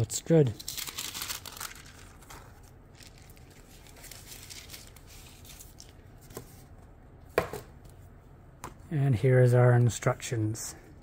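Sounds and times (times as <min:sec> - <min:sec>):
paper rustling and crinkling: 0:00.4 - 0:06.7.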